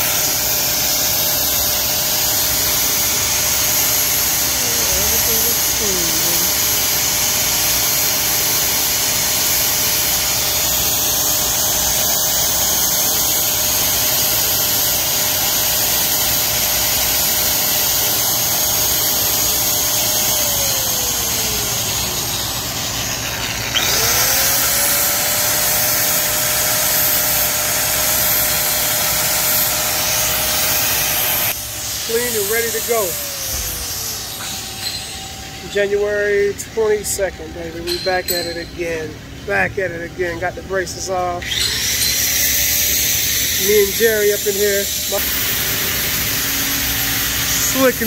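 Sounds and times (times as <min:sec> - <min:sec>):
power tool motor whining: 0:00.0 - 0:39.5, 0:41.0 - 0:48.0.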